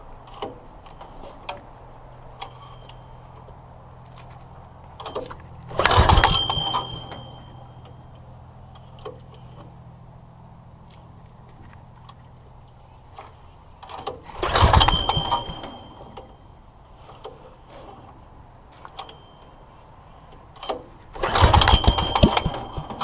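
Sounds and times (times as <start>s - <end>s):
steady low hum: 0.0s - 23.0s
metal parts clicking and knocking: 2.4s - 8.0s, 20.3s - 23.0s
loud metallic clank: 5.0s - 7.9s, 14.4s - 16.4s, 21.2s - 23.0s.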